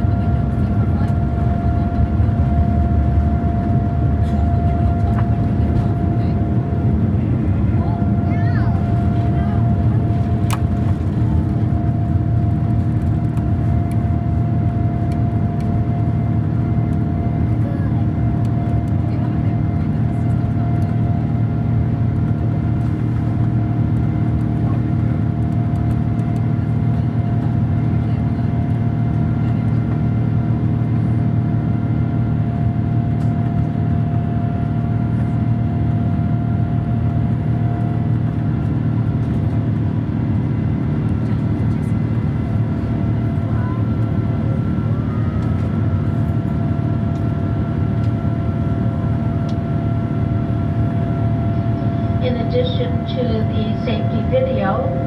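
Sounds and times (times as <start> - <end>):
airplane cabin engine rumble: 0.0 - 55.0
faint steady tones: 51.1 - 55.0.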